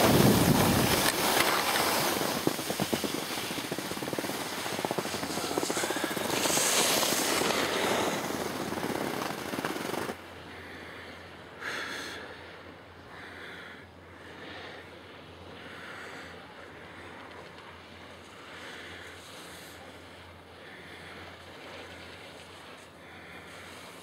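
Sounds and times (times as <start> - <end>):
wind on microphone: 0.0 - 1.4
skis scraping over snow: 0.0 - 10.2, 21.0 - 24.0.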